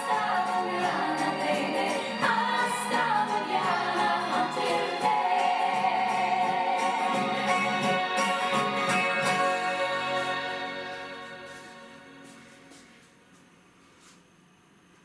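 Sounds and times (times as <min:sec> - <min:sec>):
song playing from stereo: 0:00.0 - 0:13.2.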